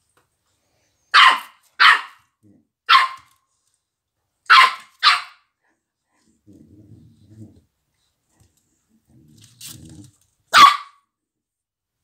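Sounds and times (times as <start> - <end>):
puppy barking: 1.1 - 3.4, 4.5 - 5.5, 10.5 - 11.1.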